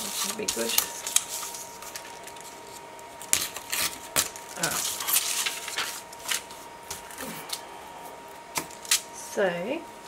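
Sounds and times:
paper rustling: 0.0 - 7.2.

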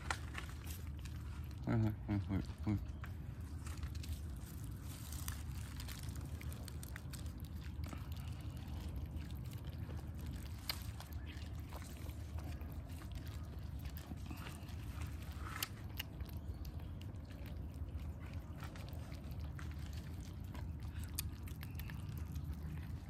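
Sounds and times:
cats eating wet food: 0.0 - 23.0
low background hum: 0.0 - 23.0.

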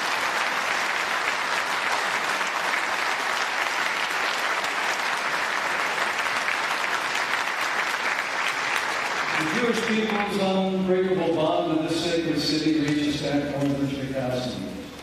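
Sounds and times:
audience applause: 0.0 - 10.8.

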